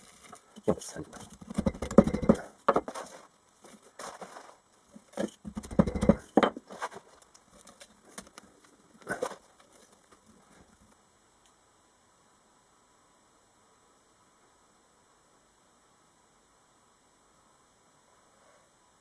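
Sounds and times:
sand scraping: 2.4 - 5.3.

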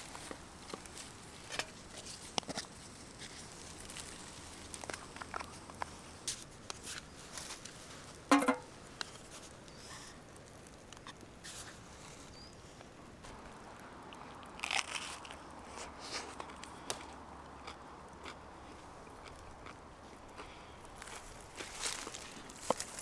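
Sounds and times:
chewing crunchy pizza: 13.3 - 23.0.

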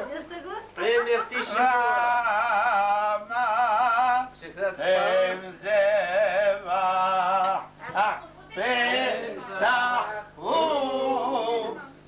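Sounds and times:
man singing ornamented phrases: 0.8 - 8.2.

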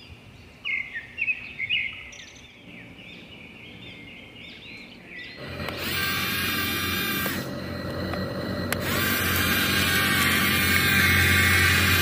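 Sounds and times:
small electric motors whining: 5.4 - 12.0.

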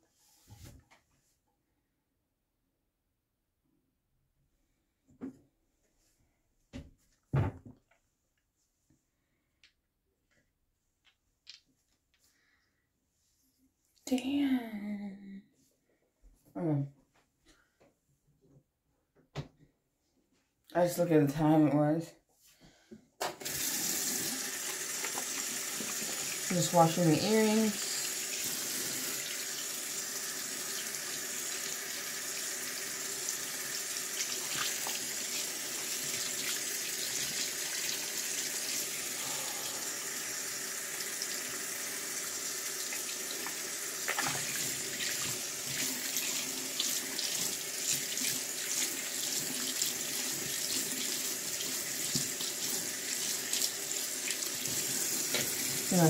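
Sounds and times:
sink tap running: 23.2 - 56.0
water splashing: 34.2 - 37.9, 42.9 - 49.7.

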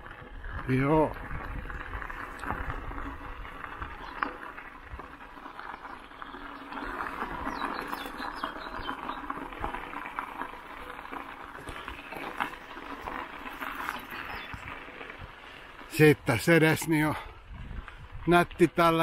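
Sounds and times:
bicycle tyres on gravel: 0.0 - 19.0
bird chirping: 5.6 - 9.4, 13.8 - 14.7.

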